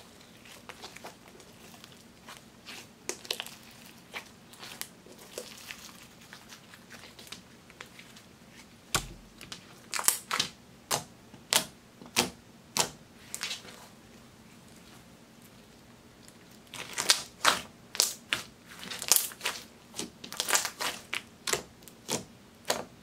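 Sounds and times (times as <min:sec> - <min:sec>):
slime crackling: 0:00.0 - 0:08.2, 0:16.6 - 0:22.8
slime thump on table: 0:09.0 - 0:09.3.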